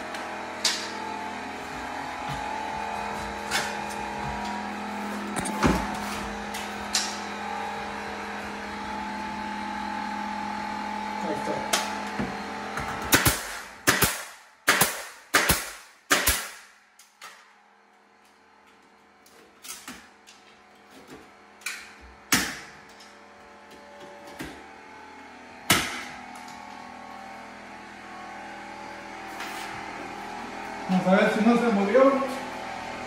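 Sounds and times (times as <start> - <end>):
pneumatic nail gun shots: 13.1 - 16.7, 22.3 - 22.7, 25.7 - 26.2.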